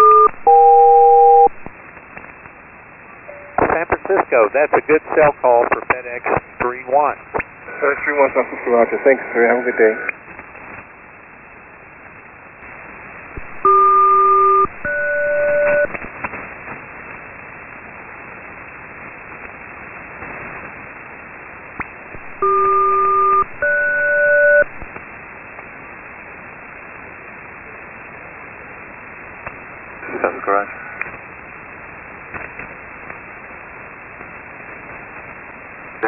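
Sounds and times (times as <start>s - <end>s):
radio hiss: 3.1s - 10.8s, 27.3s - 36.0s
paired two-tone radio bursts: 3.3s - 6.4s.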